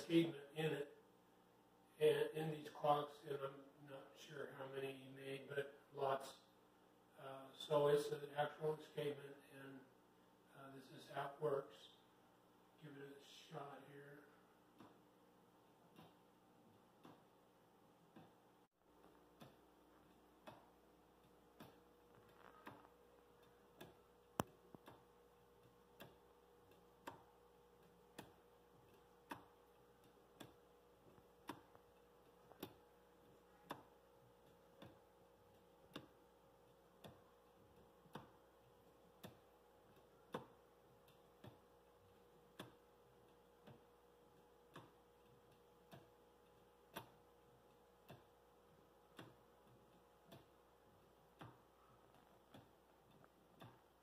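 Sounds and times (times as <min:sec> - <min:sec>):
wooden escapement ticking: 0:13.3 - 0:54.0.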